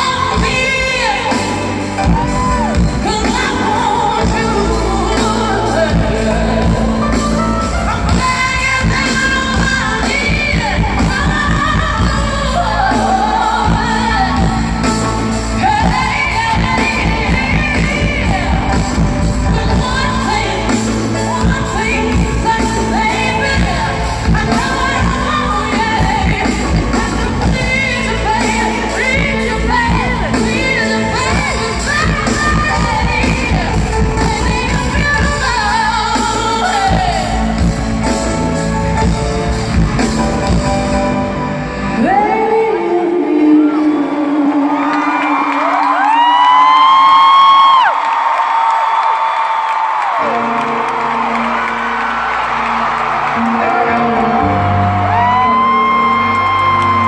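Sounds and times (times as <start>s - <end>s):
woman singing a ballad: 0.0s - 39.2s, 41.8s - 47.4s.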